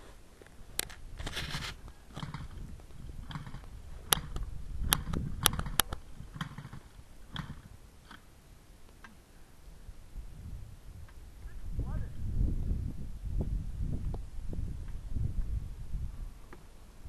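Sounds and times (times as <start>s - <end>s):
dry brush crackling: 0.0s - 4.1s.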